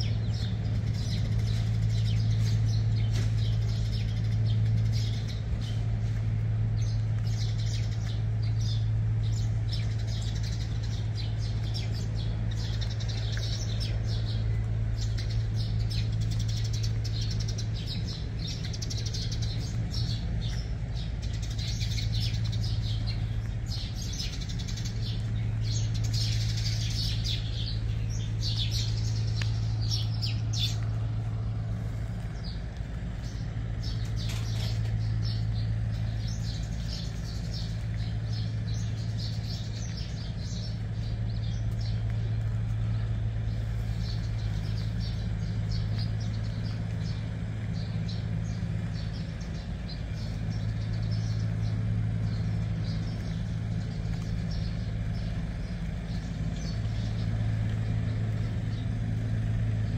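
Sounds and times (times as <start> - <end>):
small birds chirping: 0.0 - 59.9
steady low hum: 0.0 - 59.9.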